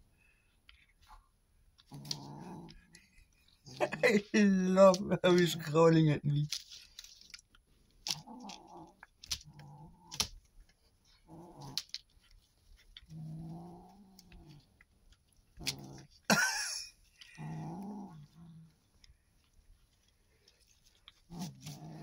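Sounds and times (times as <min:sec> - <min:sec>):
kitten growling: 0:01.8 - 0:05.0, 0:08.1 - 0:22.0.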